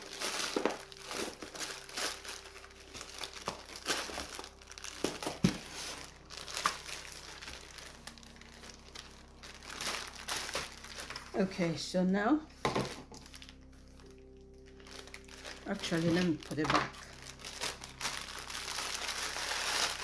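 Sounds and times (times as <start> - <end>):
packaging crinkling and rustling: 0.0 - 11.5, 12.5 - 20.0.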